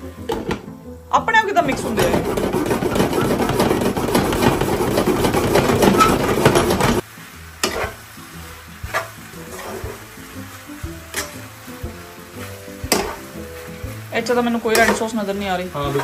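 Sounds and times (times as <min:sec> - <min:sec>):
sauce sizzling in pan: 0:00.0 - 0:16.0
spoon clattering against pan: 0:01.7 - 0:07.0, 0:12.8 - 0:13.4, 0:14.7 - 0:15.1.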